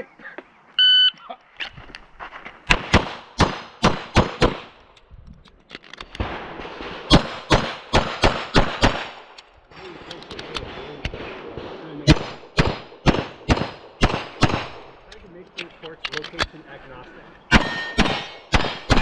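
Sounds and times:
pistol shots: 2.7s - 4.8s, 6.2s - 9.4s, 10.4s - 15.1s, 17.5s - 19.0s.

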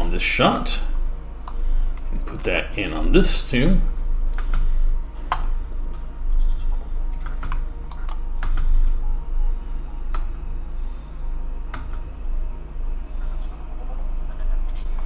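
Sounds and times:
low hum: 0.0s - 15.0s
keyboard and mouse clicks: 4.2s - 4.7s, 7.1s - 8.7s, 11.7s - 12.1s.

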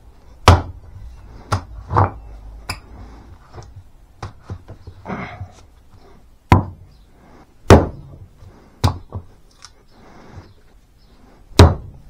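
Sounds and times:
axe chopping wood: 0.4s - 0.8s, 1.5s - 2.2s, 6.5s - 6.8s, 7.7s - 8.2s, 8.8s - 9.3s, 11.5s - 12.0s.

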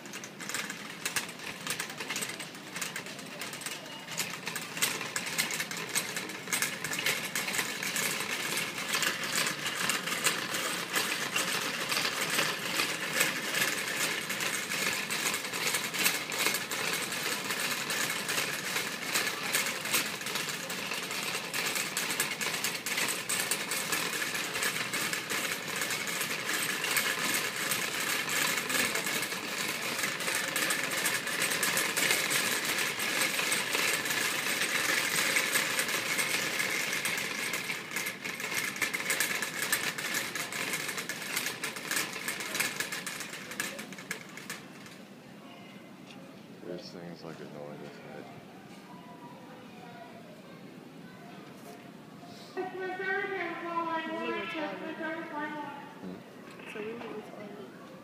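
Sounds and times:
shopping cart rattling: 0.0s - 45.0s, 52.6s - 55.7s.

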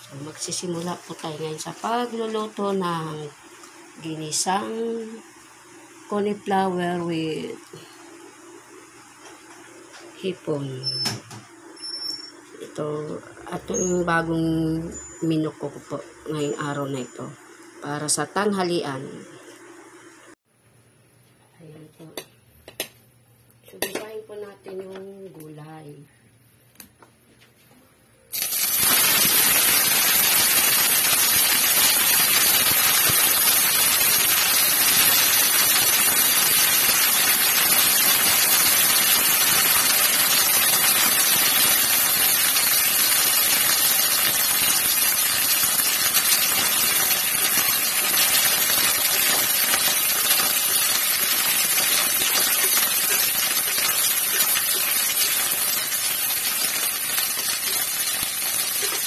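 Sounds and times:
vegetables sizzling in hot oil: 0.0s - 9.9s, 28.3s - 59.0s.

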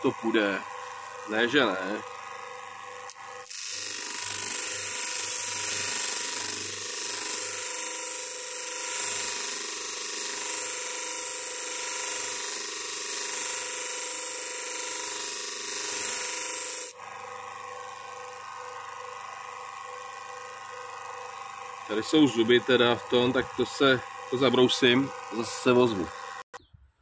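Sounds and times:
grinder motor hum: 0.0s - 26.7s.

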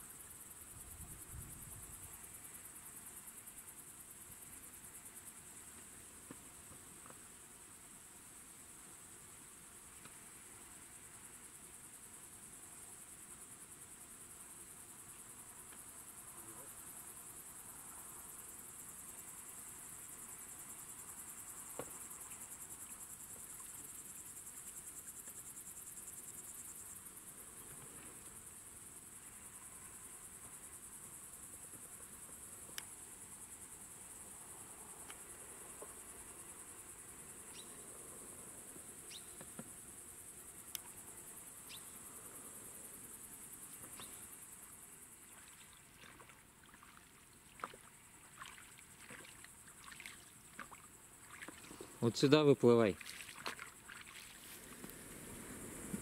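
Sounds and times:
insects chirring: 0.0s - 56.0s
oars splashing and rattling: 45.3s - 52.2s, 52.9s - 54.8s.

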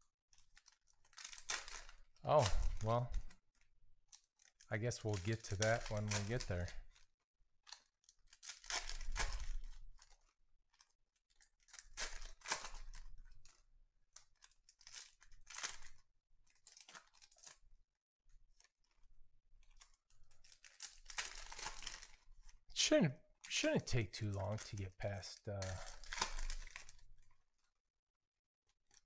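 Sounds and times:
foil wrappers tearing and crinkling: 0.4s - 3.4s, 4.1s - 7.0s, 7.7s - 13.6s, 14.2s - 17.6s, 19.7s - 22.6s, 24.2s - 27.3s.

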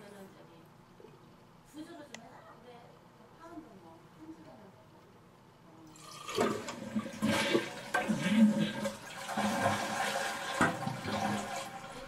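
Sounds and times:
toilet flushing: 5.9s - 12.0s.

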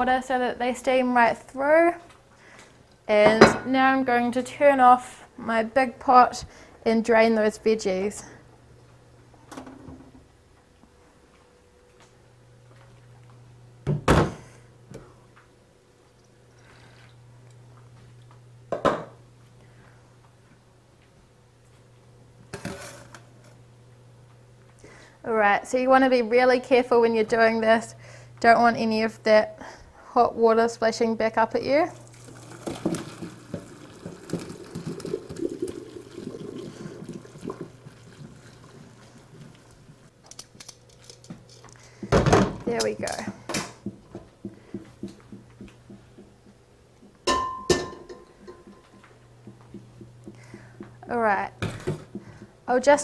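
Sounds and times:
water pouring into a colander: 32.0s - 40.0s.

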